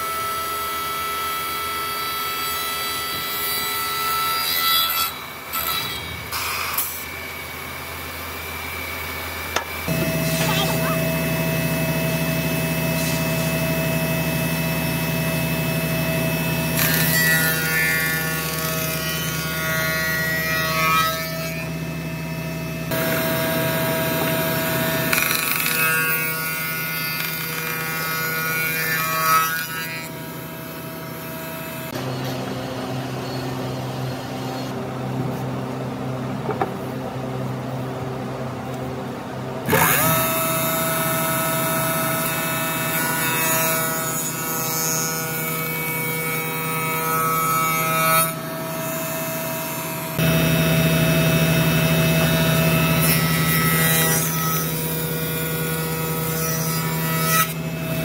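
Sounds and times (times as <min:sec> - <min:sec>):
wood shaper machine whining: 0:07.9 - 0:34.8, 0:39.6 - 0:58.0.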